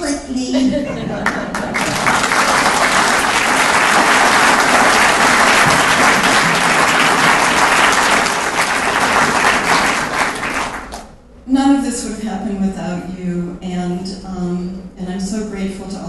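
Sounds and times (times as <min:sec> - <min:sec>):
audience applauding: 0:01.2 - 0:11.1.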